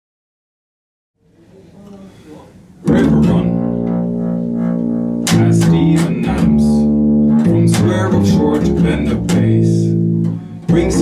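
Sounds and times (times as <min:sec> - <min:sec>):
double bass plucked: 0:02.8 - 0:11.0.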